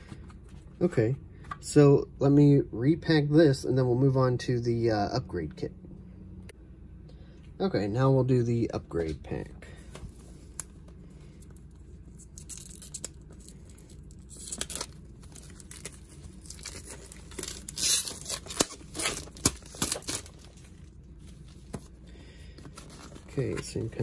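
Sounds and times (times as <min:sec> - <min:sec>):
plastic shrink-wrap crackling: 0:12.2 - 0:21.0.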